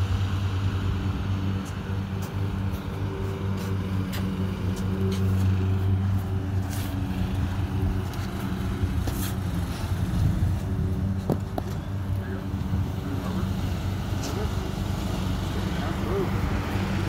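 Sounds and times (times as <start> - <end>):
low machine hum: 0.0 - 17.0
light taps and scuffs: 1.6 - 7.2, 8.0 - 9.9.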